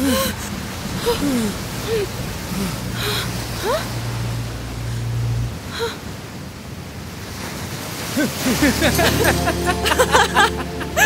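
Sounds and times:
ocean surf: 0.0s - 11.0s.

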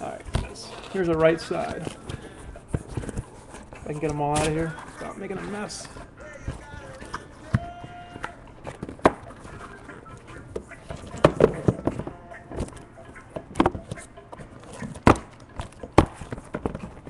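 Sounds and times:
cardboard boxes knocking and scraping: 0.0s - 5.8s, 10.5s - 12.8s, 14.6s - 17.0s
cardboard rustling: 0.0s - 17.0s.

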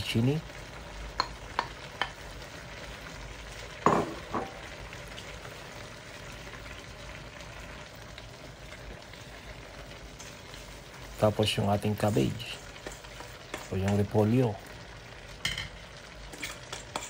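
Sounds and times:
food sizzling in a wok: 0.0s - 17.0s
wooden spatula stirring in pan: 8.6s - 14.8s, 16.2s - 17.0s.

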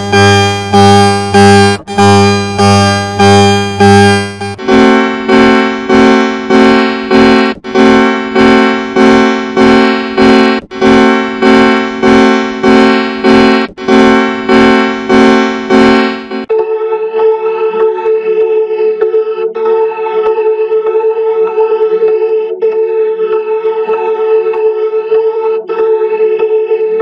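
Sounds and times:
pulsing electronic alarm tone: 0.0s - 16.5s.

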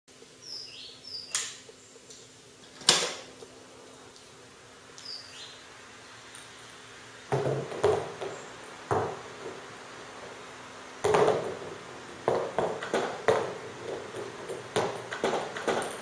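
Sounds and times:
electric fan hum: 0.1s - 16.0s
table tennis balls clattering: 7.3s - 10.4s, 11.0s - 16.0s.

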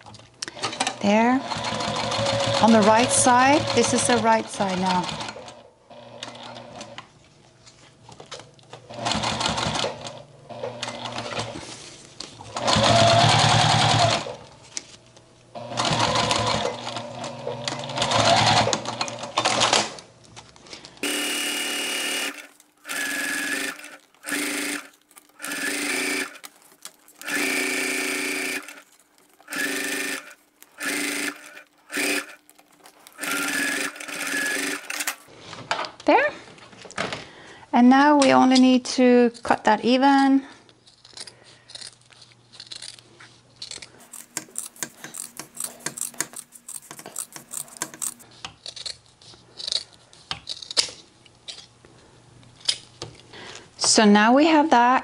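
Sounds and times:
sewing machine stitching: 0.6s - 7.0s, 12.5s - 14.4s, 15.6s - 19.9s, 21.0s - 35.3s, 44.0s - 48.2s.

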